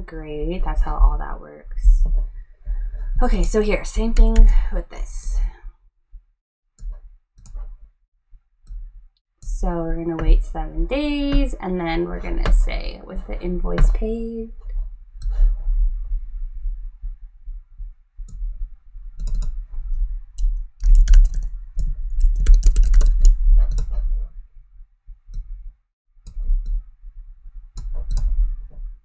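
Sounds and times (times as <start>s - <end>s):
mouse clicking: 19.2s - 19.6s, 20.4s - 24.0s, 27.8s - 28.4s
typing on computer keyboard: 19.2s - 19.6s, 20.4s - 23.9s.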